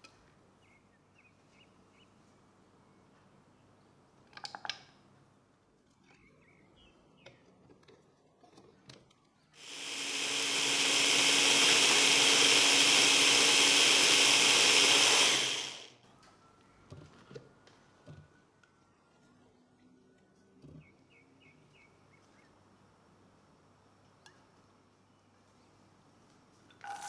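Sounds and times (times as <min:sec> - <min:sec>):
electric mini chopper blending: 0:09.6 - 0:16.0.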